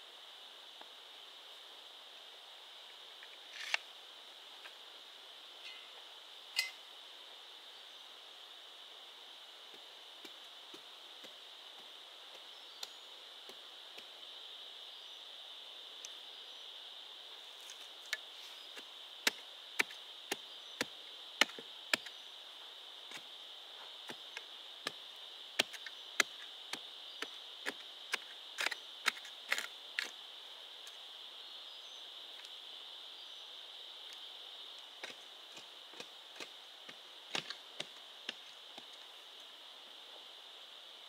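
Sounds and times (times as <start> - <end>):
high-pitched insect drone: 3.2 - 41.0.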